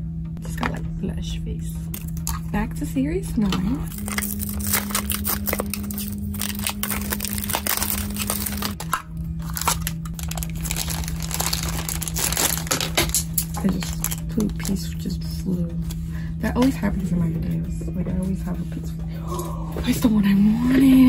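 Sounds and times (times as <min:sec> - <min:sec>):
plastic wrapping crinkling: 0:03.9 - 0:15.0.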